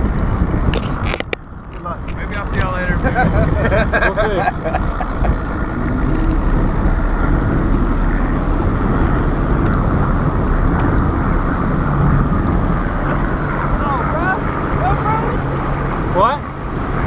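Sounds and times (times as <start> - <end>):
outboard motors running: 0.0 - 17.0.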